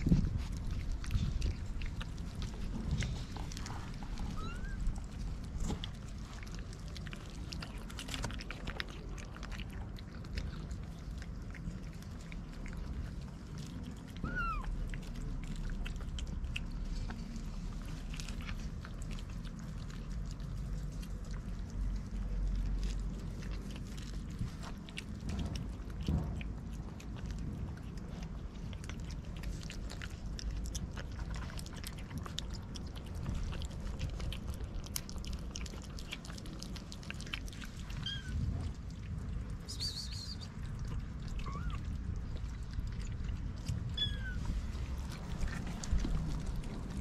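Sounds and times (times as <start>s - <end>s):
cats chewing and smacking: 0.0s - 47.0s
kitten mewing: 4.2s - 5.1s, 14.2s - 14.8s, 37.9s - 38.5s, 41.3s - 42.0s, 43.8s - 44.6s.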